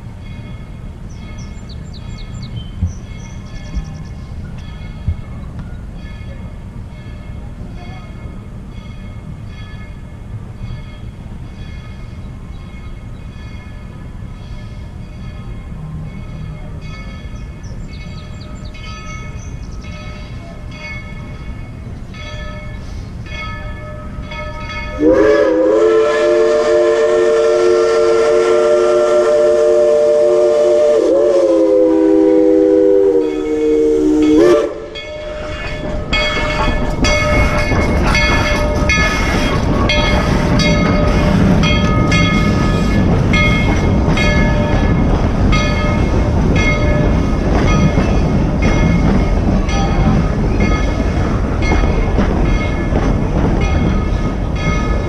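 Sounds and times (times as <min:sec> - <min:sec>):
train cars rolling on track: 0:00.0 - 0:55.0
steam whistle chime: 0:24.0 - 0:36.6.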